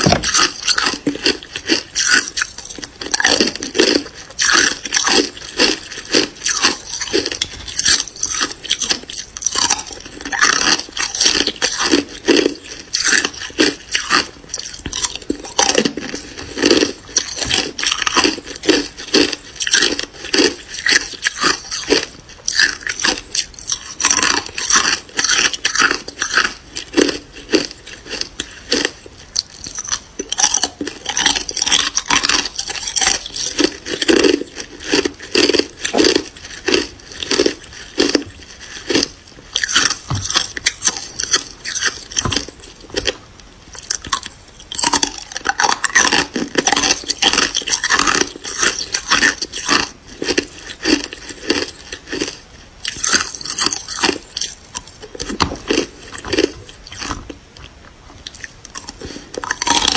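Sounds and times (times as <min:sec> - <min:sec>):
ice crunching being chewed: 0:00.0 - 0:59.9.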